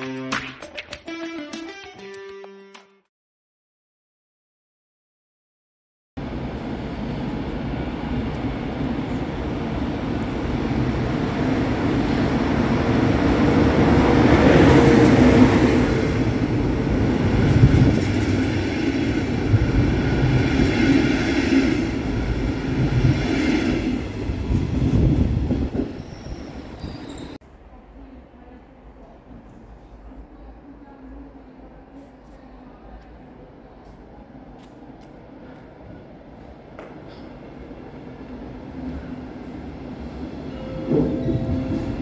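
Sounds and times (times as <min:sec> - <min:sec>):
passing train rumble: 0:06.2 - 0:31.9, 0:32.9 - 0:42.0
thin high squeal: 0:26.0 - 0:27.4.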